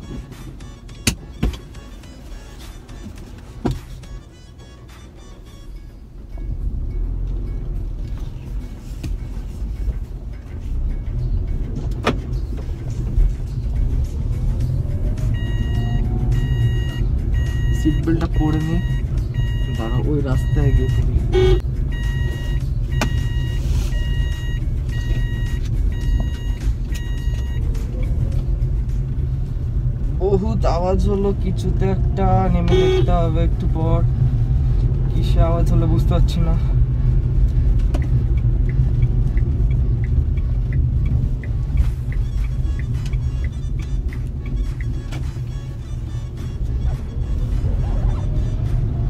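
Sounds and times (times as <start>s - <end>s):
dashboard warning chime beeping: 0.0s - 6.6s, 15.1s - 28.4s, 30.2s - 33.7s, 38.0s - 49.0s
car driving rumble: 0.0s - 49.0s
light regular ticking: 34.2s - 47.5s.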